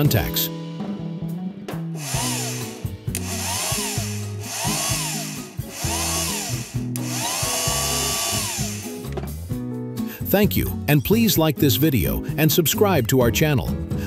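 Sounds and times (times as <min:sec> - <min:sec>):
background music: 0:00.0 - 0:14.0
starter motor whining: 0:02.0 - 0:09.1.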